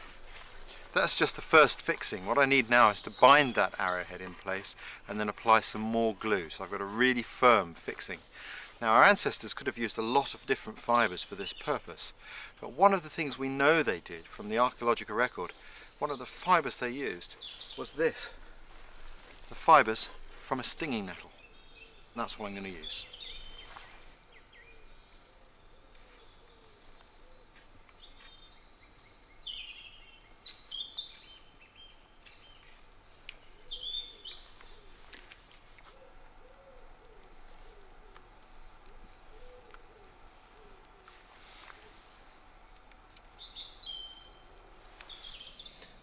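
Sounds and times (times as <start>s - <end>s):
songbird warbling: 0.0s - 5.0s, 15.1s - 45.9s
low repeated bird call: 14.9s - 46.0s.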